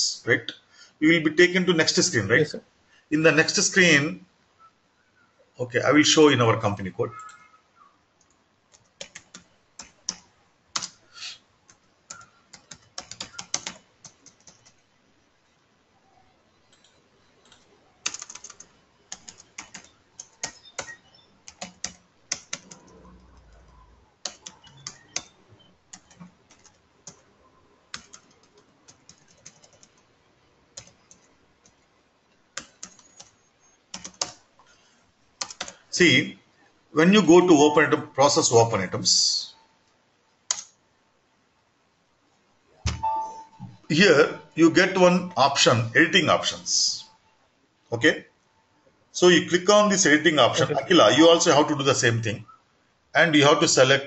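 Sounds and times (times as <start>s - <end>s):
computer keyboard typing: 7.1s - 7.5s, 8.2s - 11.0s, 11.7s - 14.9s, 16.6s - 27.3s, 27.9s - 30.1s, 30.8s - 31.9s, 32.5s - 34.4s, 35.4s - 35.8s, 40.5s - 40.8s.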